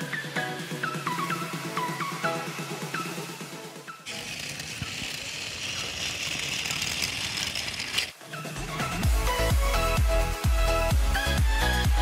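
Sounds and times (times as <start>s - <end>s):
electronic music with falling chirp: 0.0s - 4.1s, 8.2s - 12.0s
toy train motor whirring: 4.0s - 8.6s.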